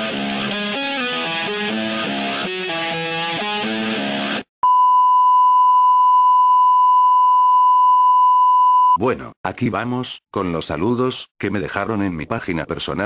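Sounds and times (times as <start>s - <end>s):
rock music with electric guitar: 0.0s - 4.5s.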